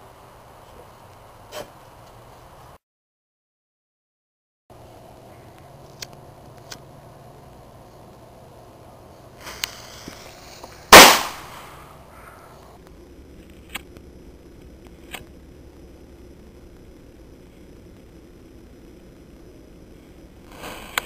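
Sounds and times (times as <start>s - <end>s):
faint hiss: 4.8s - 21.0s
firecracker blast: 9.4s - 11.9s.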